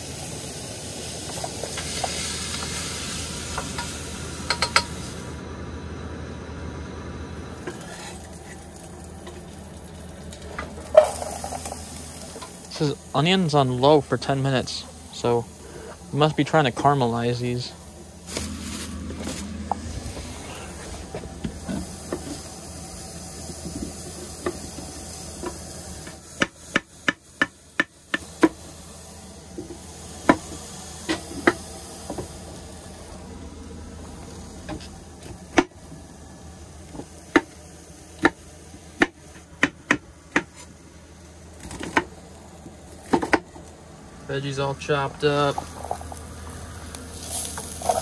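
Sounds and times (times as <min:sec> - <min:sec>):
onions sizzling faintly in pan: 0:00.0 - 0:05.4, 0:07.4 - 0:48.0
knife chopping on wooden board: 0:39.0 - 0:40.6.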